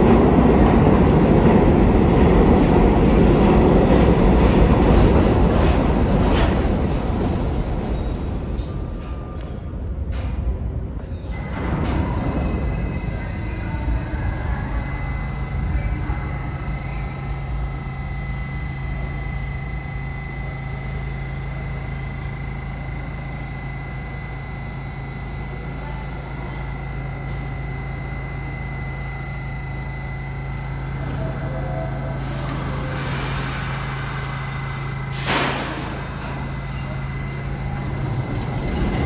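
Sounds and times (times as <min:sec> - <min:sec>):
train electrical hum: 0:00.0 - 0:39.0
high whine: 0:11.3 - 0:39.0
air hissing: 0:32.2 - 0:37.0.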